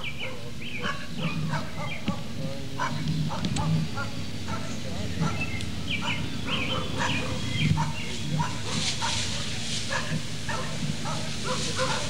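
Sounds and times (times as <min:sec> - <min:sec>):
dogs barking: 0:00.0 - 0:12.0
garden hose spraying water: 0:03.6 - 0:12.0.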